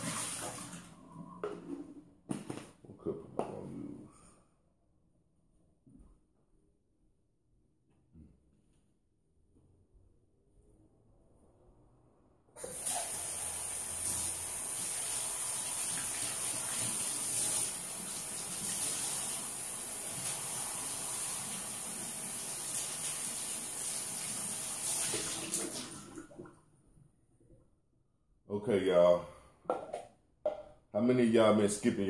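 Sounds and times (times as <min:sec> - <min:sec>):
kitchen tap running: 0:00.0 - 0:00.9, 0:12.6 - 0:26.5.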